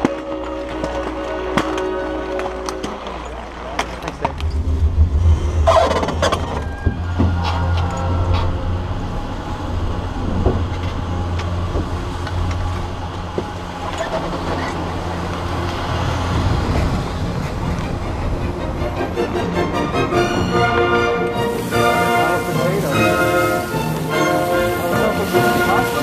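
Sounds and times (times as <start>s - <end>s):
chairlift machinery hum: 0.0s - 26.0s.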